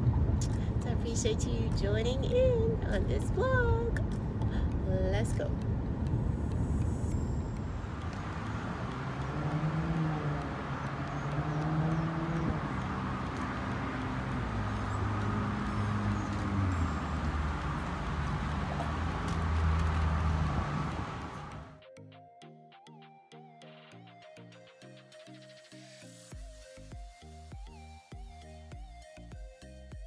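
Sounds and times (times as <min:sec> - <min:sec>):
car engine hum: 0:00.0 - 0:21.8
rushing road noise: 0:00.0 - 0:21.8.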